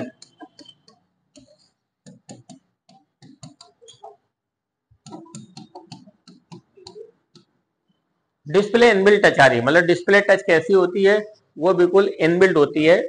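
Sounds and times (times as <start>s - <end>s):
marker squeaking on whiteboard: 0.0s - 8.2s.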